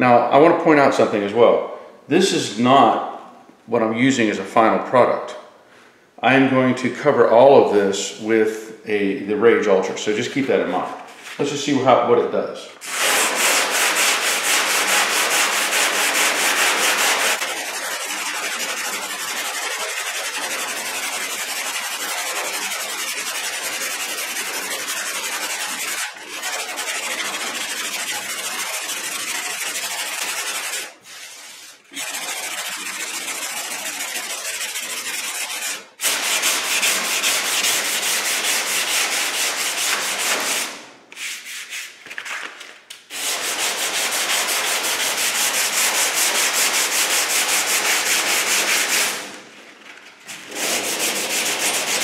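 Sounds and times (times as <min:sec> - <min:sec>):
hand sanding body filler: 0:12.8 - 0:42.0, 0:43.1 - 0:49.4, 0:50.3 - 0:52.0.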